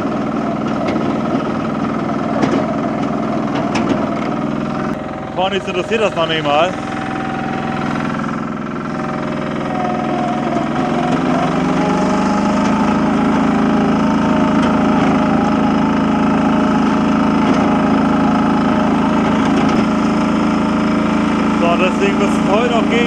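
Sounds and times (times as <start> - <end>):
loader engine running: 0.0 - 23.0.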